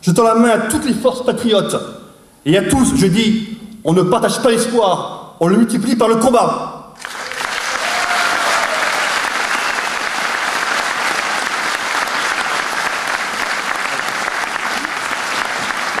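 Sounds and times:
audience applauding: 7.0 - 16.0.

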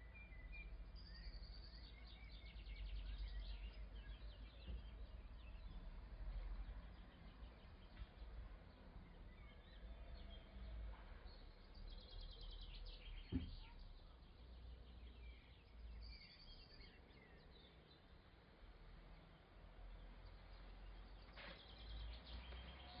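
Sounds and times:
soft thump: 13.3 - 13.6.

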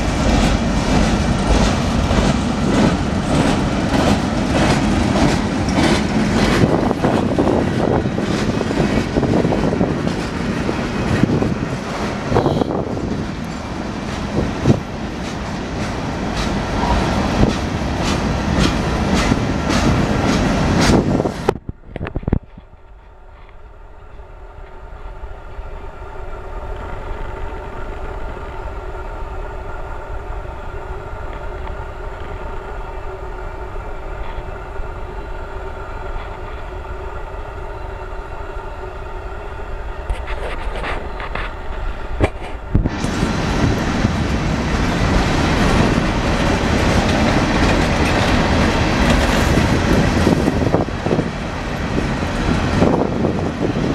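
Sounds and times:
freight train wheels clicking: 0.0 - 25.7, 40.0 - 53.9.

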